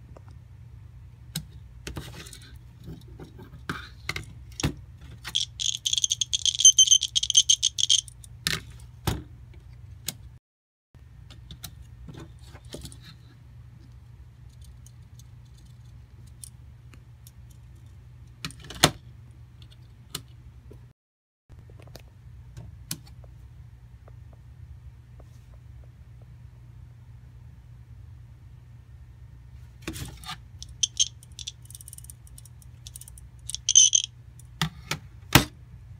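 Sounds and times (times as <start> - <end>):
low steady hum: 0.0 - 10.3, 21.5 - 35.9
plastic pieces clicking: 5.3 - 8.1, 30.6 - 34.1
snap parts rattling in package: 5.3 - 8.2, 30.6 - 34.1.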